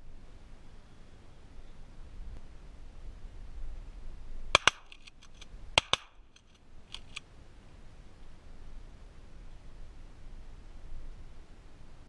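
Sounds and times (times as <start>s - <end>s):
shotgun blasts: 4.6s - 5.1s, 5.8s - 6.2s
sharp clicks: 4.6s - 7.2s.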